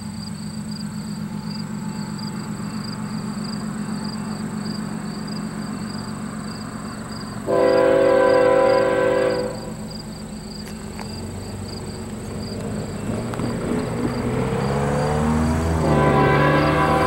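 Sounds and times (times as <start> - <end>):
train diesel engine rumble: 0.0 - 17.0
locomotive air horn chord: 7.4 - 9.9, 15.8 - 17.0.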